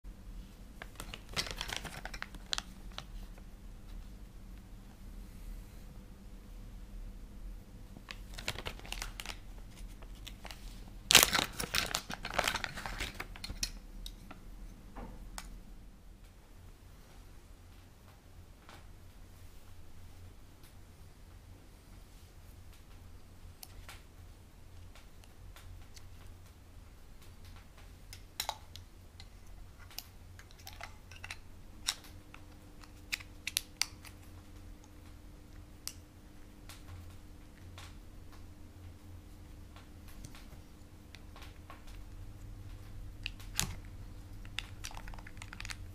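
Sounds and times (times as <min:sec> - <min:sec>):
plastic bag crinkling: 0:00.8 - 0:03.4, 0:08.0 - 0:13.8, 0:43.2 - 0:45.9.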